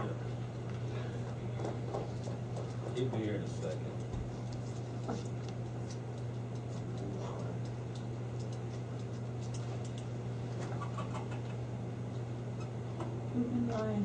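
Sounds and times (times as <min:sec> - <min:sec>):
light ticks and clicks: 0:05.4 - 0:10.1.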